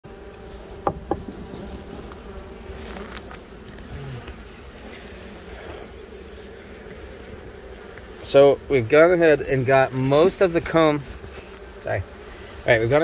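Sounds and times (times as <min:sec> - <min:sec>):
bees buzzing as a swarm: 0:00.0 - 0:13.0
sharp knocks: 0:00.8 - 0:01.5.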